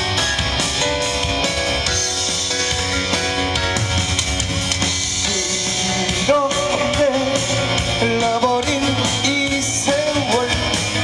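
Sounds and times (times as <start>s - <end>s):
drums and guitar music: 0.0s - 11.0s
man singing: 5.2s - 11.0s.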